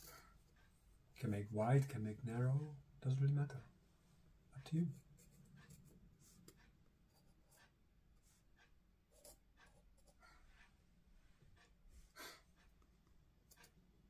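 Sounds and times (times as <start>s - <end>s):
pencil scratching on paper: 4.6s - 10.8s.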